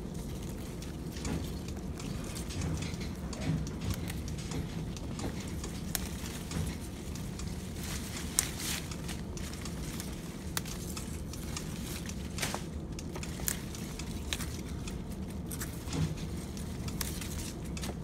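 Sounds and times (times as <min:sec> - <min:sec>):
leaves rustling and crackling: 0:05.8 - 0:15.8.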